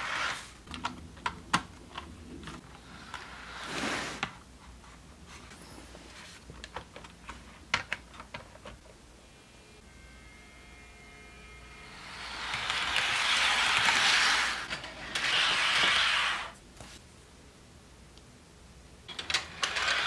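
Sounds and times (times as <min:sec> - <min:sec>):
model train sliding noise: 0:11.9 - 0:16.6, 0:19.1 - 0:20.0
model train wheels clicking and rattling: 0:19.1 - 0:20.0.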